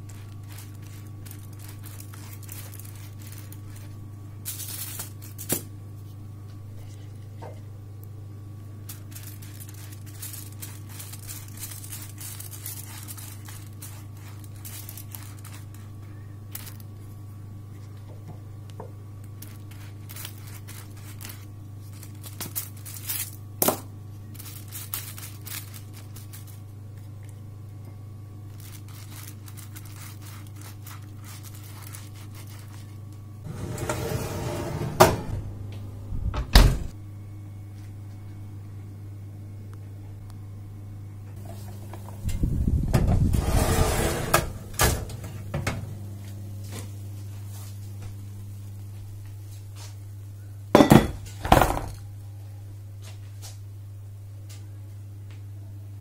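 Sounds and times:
foil crackling: 0.0 - 6.2, 8.7 - 18.1, 19.2 - 27.4, 28.3 - 33.6
steady low hum: 0.0 - 56.0
tray scraping into oven: 33.4 - 35.6, 43.0 - 46.0
oven door knocking shut: 36.3 - 36.9.

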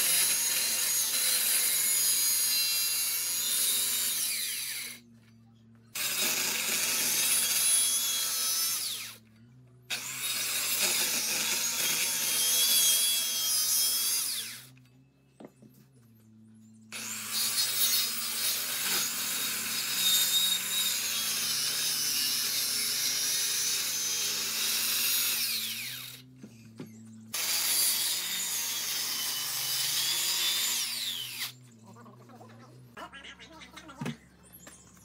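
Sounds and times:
electric saw cutting wood: 0.0 - 5.0, 5.9 - 9.2, 9.9 - 14.8, 16.9 - 26.3, 27.3 - 31.6
saw motor whine winding down: 6.0 - 9.3, 9.9 - 14.8, 16.9 - 26.3, 27.3 - 31.8.

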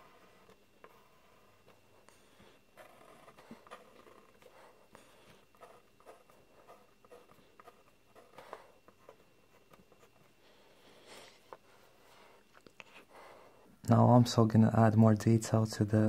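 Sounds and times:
pencil scratching on paper: 0.0 - 10.2.

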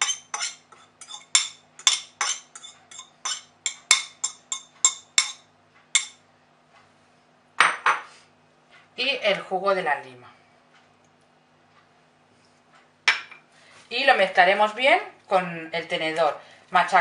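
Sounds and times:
utensils tapping a glass bowl: 0.0 - 6.2.

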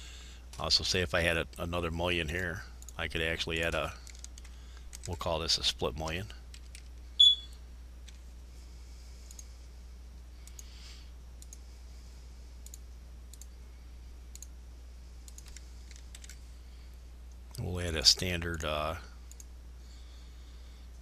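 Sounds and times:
low electrical hum: 0.0 - 21.0
computer mouse clicks: 4.0 - 5.2, 9.3 - 9.5, 10.4 - 10.7, 11.4 - 11.6, 12.6 - 13.6, 14.3 - 14.5, 15.2 - 16.4, 19.3 - 19.5.

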